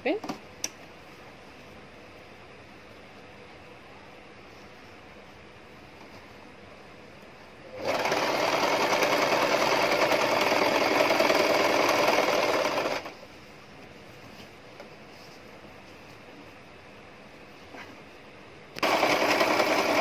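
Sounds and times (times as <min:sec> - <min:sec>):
sewing machine running: 0:07.8 - 0:13.2, 0:18.8 - 0:20.0.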